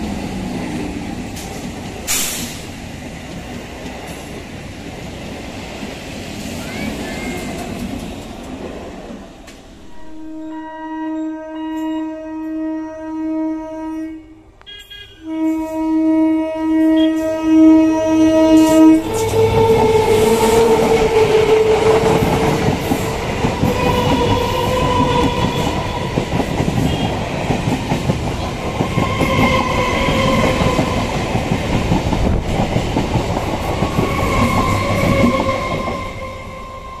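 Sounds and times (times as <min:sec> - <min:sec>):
train horn blast: 0:09.8 - 0:22.2, 0:23.6 - 0:27.3, 0:28.8 - 0:31.0, 0:34.0 - 0:37.0
train wheels clattering: 0:19.0 - 0:36.4.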